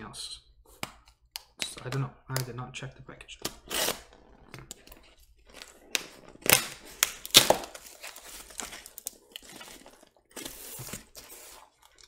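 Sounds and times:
packing tape tearing: 3.6 - 4.1, 5.6 - 9.8
cardboard crinkling and rustling: 4.8 - 12.0.

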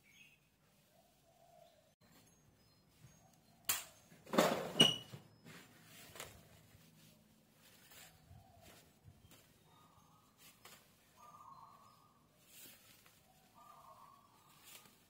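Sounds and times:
banana leaf rustling and crackling: 12.4 - 15.0.

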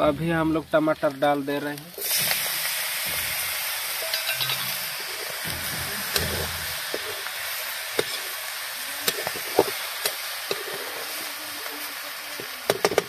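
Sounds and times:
food sizzling in oil: 0.0 - 13.0
metal spoon clinking and scraping: 4.0 - 5.3.

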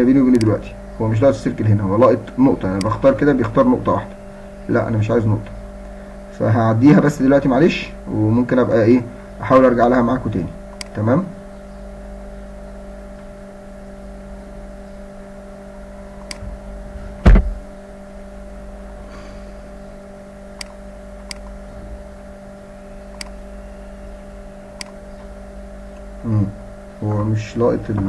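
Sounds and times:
steady low hum: 0.0 - 28.0
loud knock: 17.1 - 17.6
computer mouse clicks: 20.6 - 21.6, 23.1 - 23.4.

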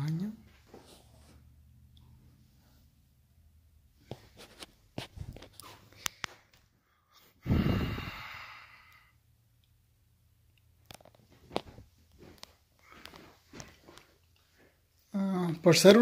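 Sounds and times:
person sighing: 7.4 - 9.1.

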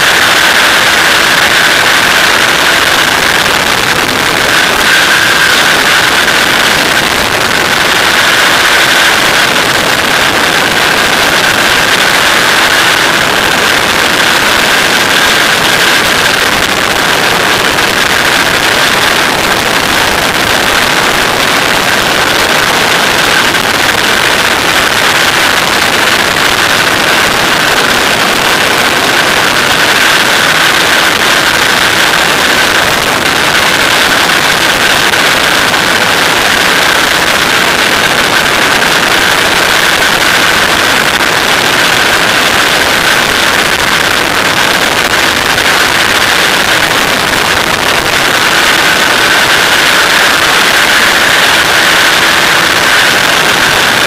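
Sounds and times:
aircraft engine and propeller: 0.0 - 54.0
loud rushing wind: 0.0 - 54.0.

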